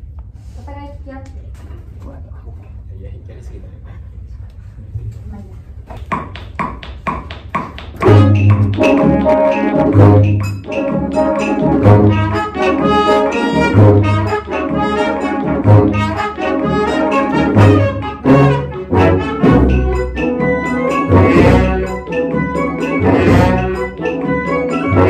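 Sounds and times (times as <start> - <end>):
wind band playing: 8.0 - 25.0.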